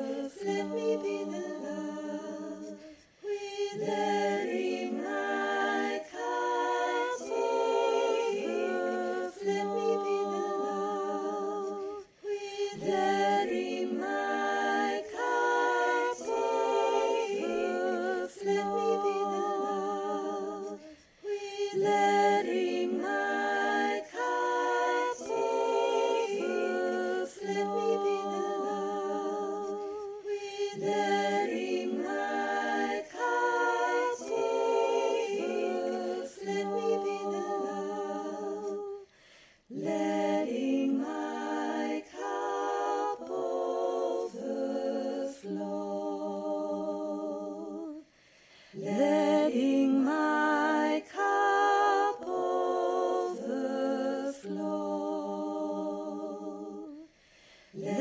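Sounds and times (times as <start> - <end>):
unaccompanied voices singing harmony: 0.0 - 58.0.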